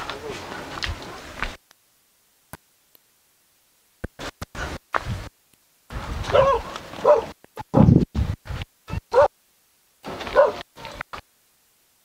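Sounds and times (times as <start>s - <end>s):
crunching footsteps on debris: 0.0s - 1.6s, 10.1s - 11.2s
dog barking: 6.3s - 7.4s, 9.1s - 9.3s, 10.2s - 11.0s.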